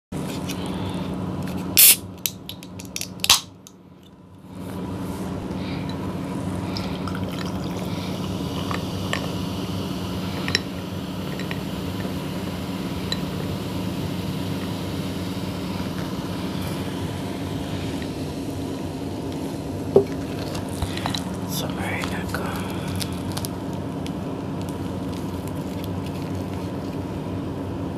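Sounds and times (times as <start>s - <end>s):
can cracked open with pop and hiss: 1.7s - 3.6s
cola fizzing in a glass: 6.7s - 9.3s.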